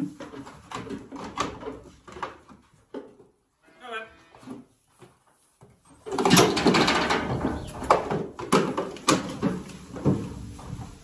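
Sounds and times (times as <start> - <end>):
hooves clattering on metal: 5.9 - 11.0.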